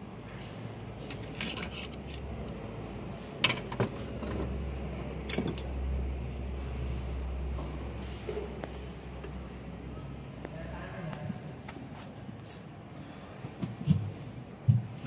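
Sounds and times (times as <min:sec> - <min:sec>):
low steady hum: 0:00.0 - 0:15.0
metal tools clinking on engine: 0:01.0 - 0:02.4, 0:05.2 - 0:05.7.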